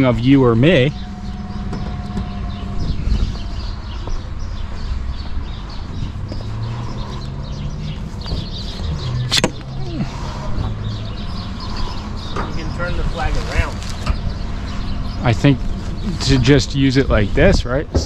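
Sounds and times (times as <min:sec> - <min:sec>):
birds chirping: 0:00.0 - 0:18.0.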